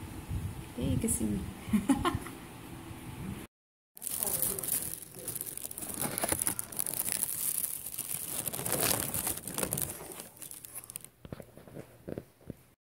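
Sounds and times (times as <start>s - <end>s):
plastic bag crinkling: 4.0s - 11.7s.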